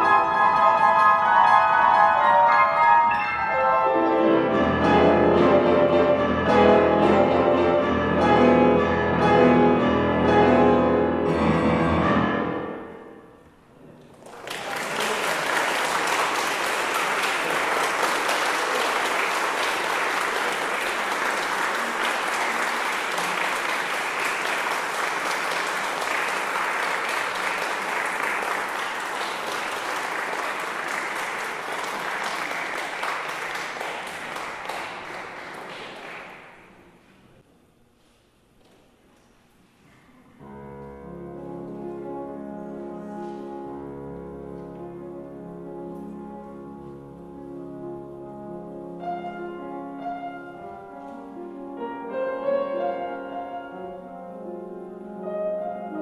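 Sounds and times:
grand piano chords: 0.0 - 14.1, 40.3 - 56.0
audience applause: 14.0 - 36.8.

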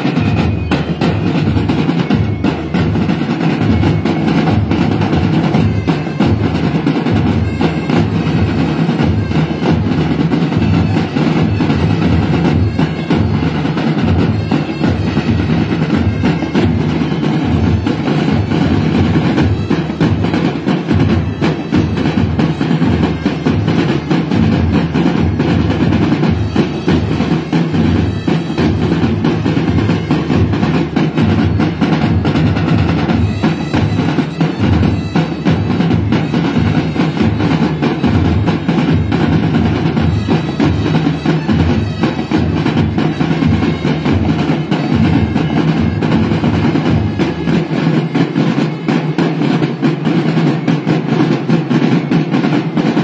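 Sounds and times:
marching drumline cadence: 0.0 - 53.0.

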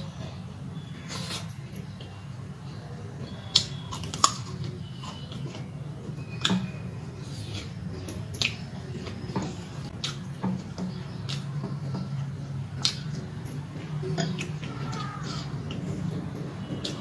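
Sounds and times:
chewing: 3.3 - 17.0
mouth clicks and smacks: 6.4 - 13.4.

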